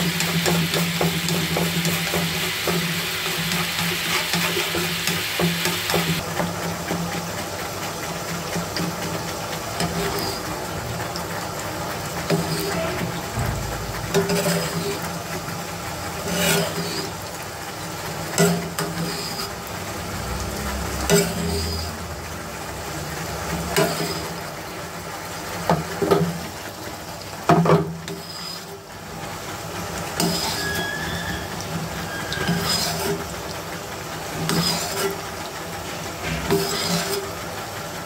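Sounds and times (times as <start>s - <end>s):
metal spoon scraping a pan: 0.0s - 6.2s, 9.8s - 10.5s, 12.2s - 13.3s, 14.1s - 15.2s, 16.2s - 17.2s, 18.3s - 19.6s, 21.0s - 22.0s, 23.7s - 24.4s, 27.6s - 28.9s, 30.2s - 33.3s, 34.4s - 35.2s, 36.2s - 37.4s
eggs sizzling in a pan: 0.0s - 38.0s.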